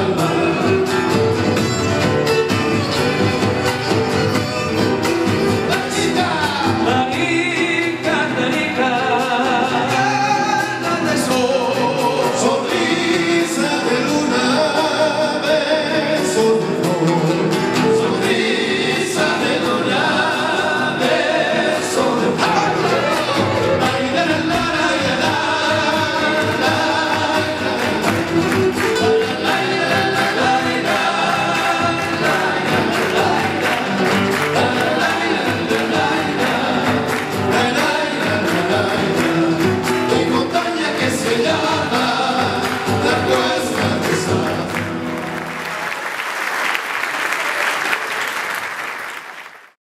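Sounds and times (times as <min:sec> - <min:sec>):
group singing folk song: 0:00.0 - 0:45.8
audience applause: 0:22.4 - 0:49.8.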